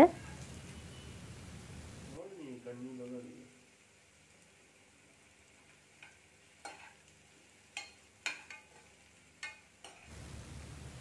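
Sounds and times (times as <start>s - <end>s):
spatula scraping a pan: 6.0s - 7.1s, 7.7s - 10.1s.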